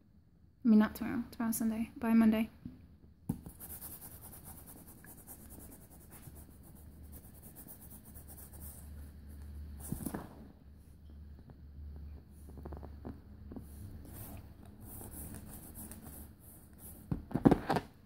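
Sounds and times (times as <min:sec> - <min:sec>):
scratchy rubbing on fabric: 0:03.4 - 0:10.2, 0:14.0 - 0:17.1.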